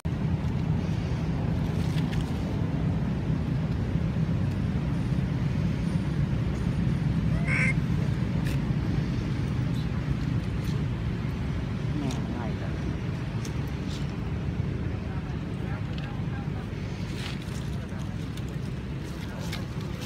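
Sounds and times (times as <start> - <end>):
steady low rumble: 0.0 - 20.0
monkey squeaking call: 7.3 - 7.8.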